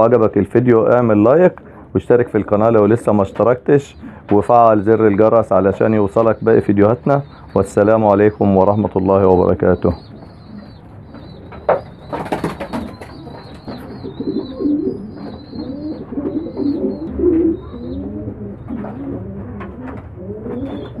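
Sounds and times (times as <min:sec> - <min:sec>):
pigeons cooing: 0:01.1 - 0:21.0.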